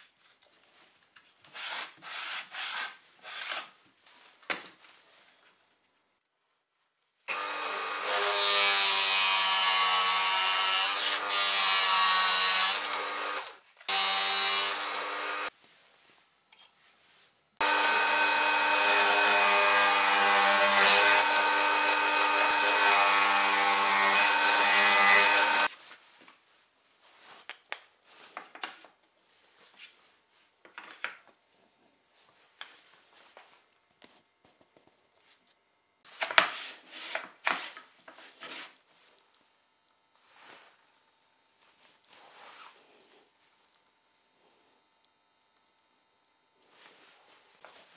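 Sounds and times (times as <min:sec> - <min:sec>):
router cutting wood: 0:07.3 - 0:15.5, 0:17.6 - 0:25.7
drill press boring into wood: 0:12.5 - 0:15.5, 0:17.6 - 0:25.7.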